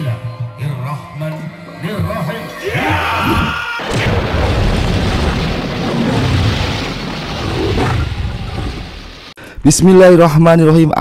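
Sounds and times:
explosion-like rumbling roar: 3.2s - 9.3s.

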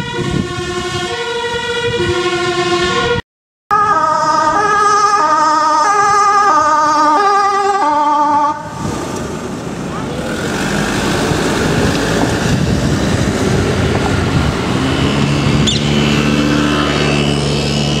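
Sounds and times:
van driving past: 8.6s - 18.0s
low engine hum: 8.7s - 18.0s.

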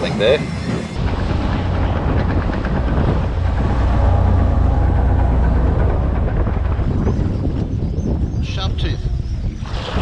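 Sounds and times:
water rushing along hull: 1.0s - 7.8s, 9.6s - 10.0s
boat engine humming: 1.0s - 7.9s.

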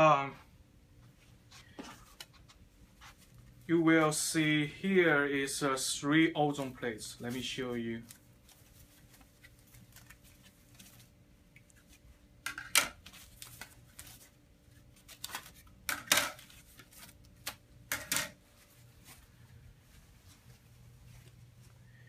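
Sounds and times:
plastic mesh rustling and crinkling: 6.6s - 12.2s, 13.0s - 17.6s.

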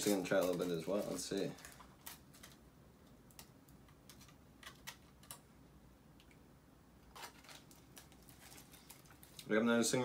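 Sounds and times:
aluminium foil crinkling: 0.0s - 2.6s, 7.0s - 9.6s.

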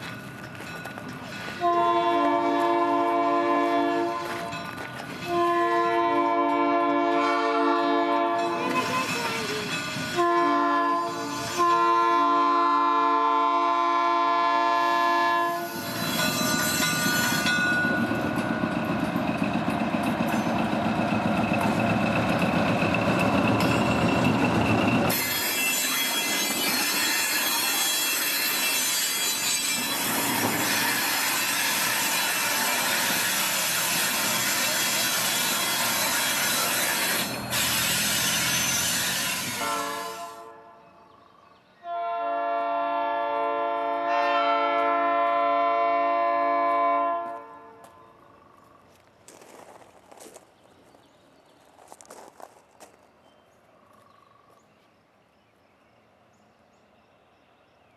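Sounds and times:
wheels on rails: 0.0s - 2.7s, 8.4s - 10.4s, 15.6s - 39.7s
locomotive horn blasts: 1.6s - 4.5s, 5.2s - 9.1s, 10.1s - 15.7s, 39.4s - 40.9s, 41.8s - 48.0s
wheel squeal: 15.6s - 18.1s, 23.2s - 40.2s.

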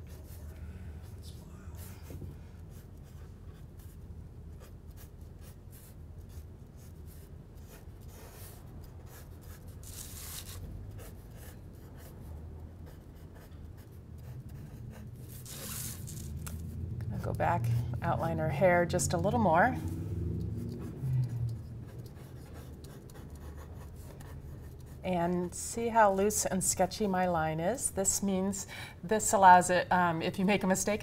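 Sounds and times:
pencil scratching on paper: 0.0s - 0.5s, 1.8s - 19.0s, 20.4s - 25.2s.

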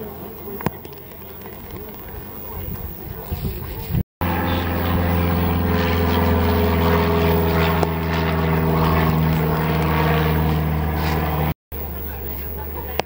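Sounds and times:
steady motor drone: 4.2s - 13.0s.

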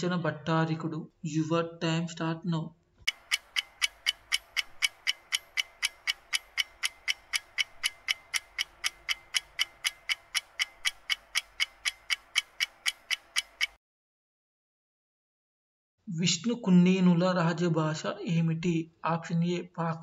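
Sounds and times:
countdown timer ticking: 3.1s - 13.8s.

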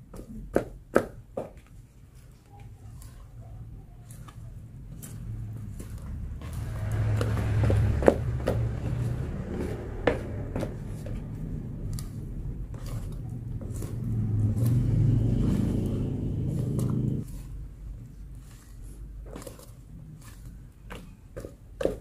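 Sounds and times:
spoon stirring thick batter: 0.0s - 22.0s.

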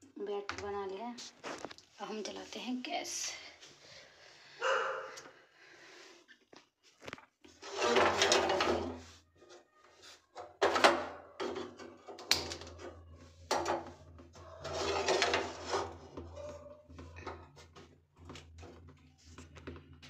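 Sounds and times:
metal scraping: 7.6s - 9.1s, 12.7s - 17.6s.

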